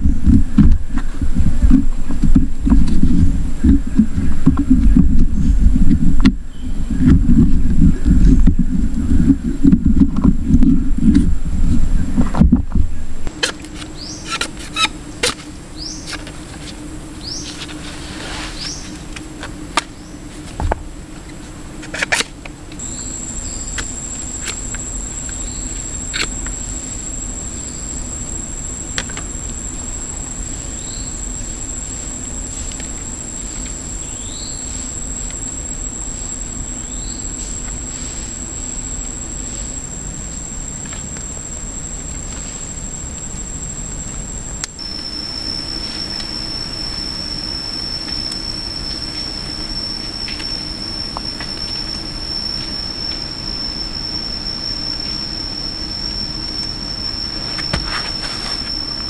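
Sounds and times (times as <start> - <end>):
high-pitched insect drone: 0.0 - 59.0
birds chirping: 1.8 - 9.7, 12.8 - 16.2, 17.1 - 17.8, 18.4 - 19.0.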